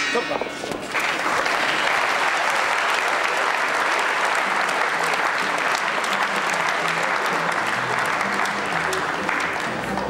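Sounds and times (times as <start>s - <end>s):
crowd applauding: 0.8s - 10.0s.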